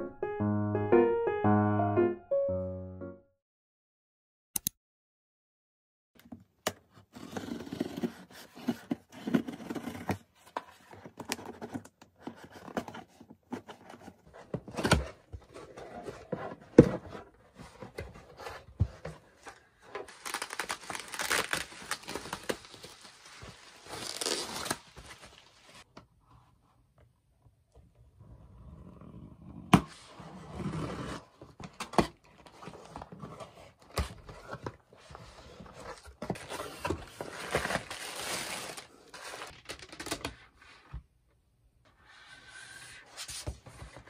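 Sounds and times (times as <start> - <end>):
cardboard rustling and scraping: 6.9 - 25.9, 29.8 - 41.0
cardboard tearing: 20.1 - 25.8.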